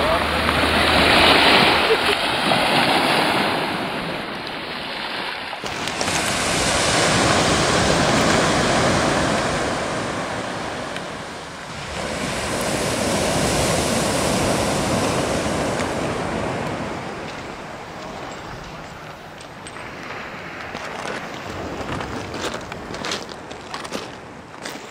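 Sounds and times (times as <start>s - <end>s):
surf on a pebble beach: 0.0s - 24.9s.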